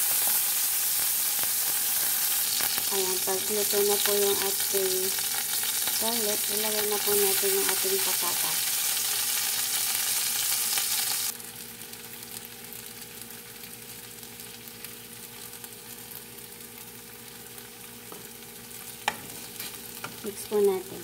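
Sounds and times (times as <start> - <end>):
potatoes sizzling in hot oil: 0.0 - 21.0
wooden spatula stirring crackle: 18.8 - 21.0.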